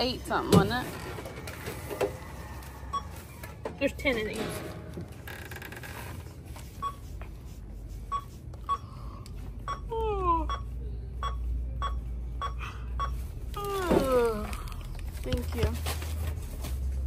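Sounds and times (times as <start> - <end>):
checkout register beeps: 2.8 - 4.3, 6.7 - 7.1, 8.0 - 13.4.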